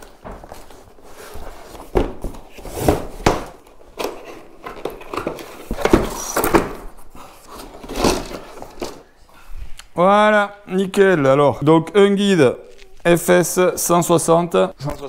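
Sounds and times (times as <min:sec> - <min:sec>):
cardboard scraping and rustling: 0:00.0 - 0:09.0.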